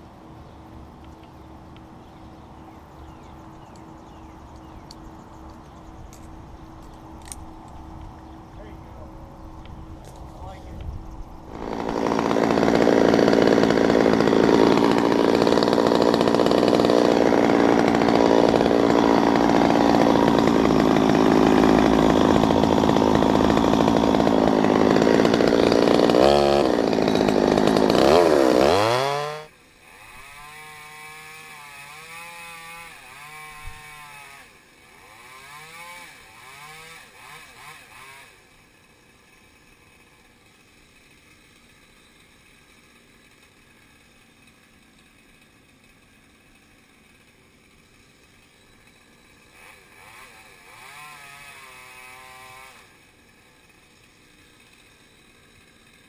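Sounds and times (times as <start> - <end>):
chainsaw cutting wood: 11.4 - 56.0
quieter chainsaw revving: 11.4 - 56.0.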